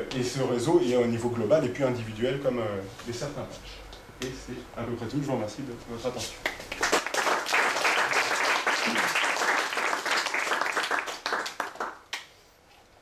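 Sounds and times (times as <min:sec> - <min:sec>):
audience applauding: 0:06.7 - 0:12.1.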